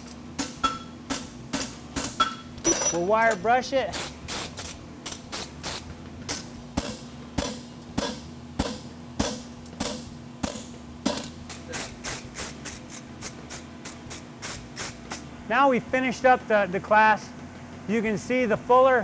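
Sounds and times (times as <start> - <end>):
hammer striking horseshoe on anvil: 0.4 - 3.1, 6.8 - 11.3.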